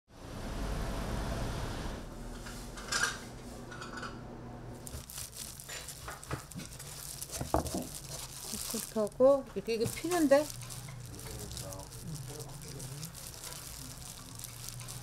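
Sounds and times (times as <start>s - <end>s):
kitchen clatters: 4.9s - 11.7s.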